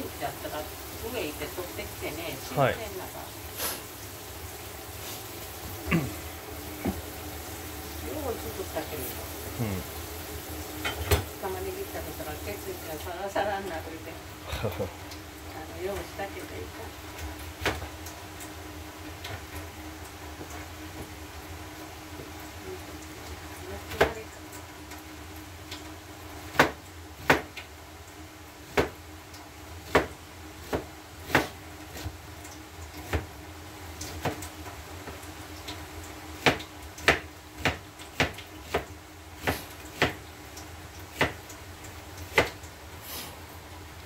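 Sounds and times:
steady low hum: 0.0 - 21.8
knife chopping on cutting board: 26.5 - 27.5, 29.9 - 32.1.

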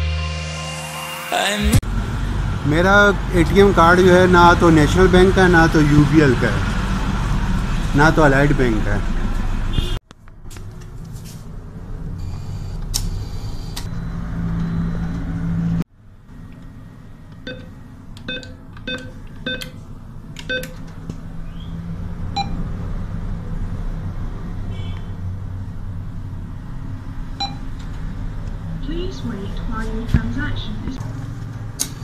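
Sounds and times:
keypad beeping: 17.4 - 19.8, 20.4 - 20.8, 27.4 - 27.7.

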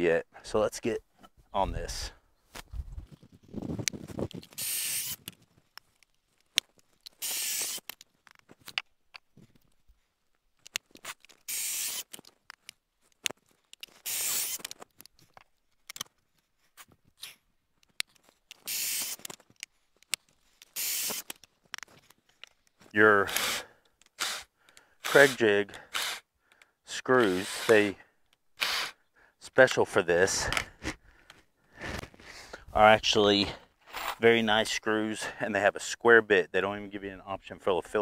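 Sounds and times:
cordless drill boring into wood: 4.6 - 5.2, 7.2 - 7.9, 11.5 - 12.1, 14.0 - 14.7, 18.7 - 19.2, 20.8 - 21.3, 23.2 - 23.6, 24.2 - 26.3, 27.2 - 27.9, 28.6 - 29.0.

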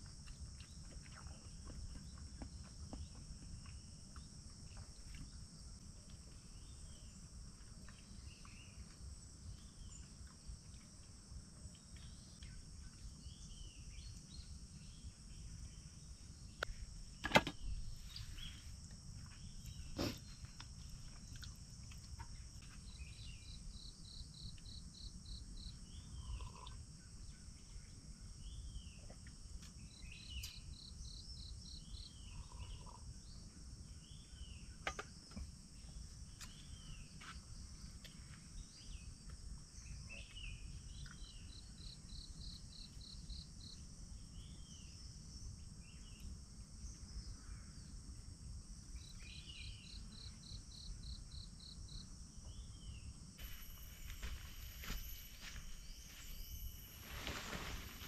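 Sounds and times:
high insect drone: 1.4 - 58.0
rapid repeated bird calls: 31.8 - 33.0.

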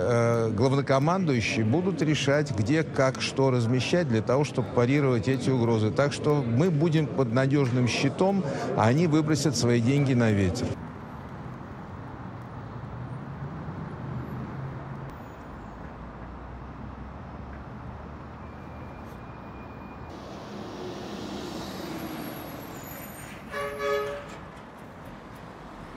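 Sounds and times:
city street traffic: 0.0 - 25.9
vehicle horn: 23.5 - 24.5.

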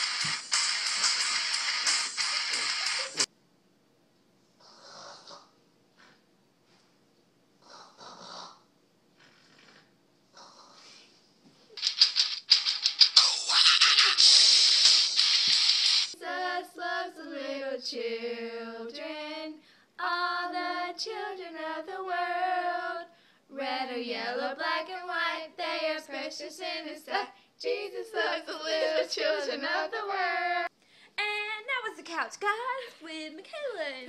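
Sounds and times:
girls singing unaccompanied: 16.2 - 30.7.

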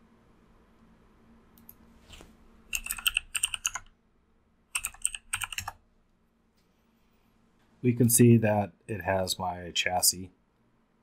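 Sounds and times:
computer keyboard typing: 2.7 - 3.9, 4.7 - 5.8.

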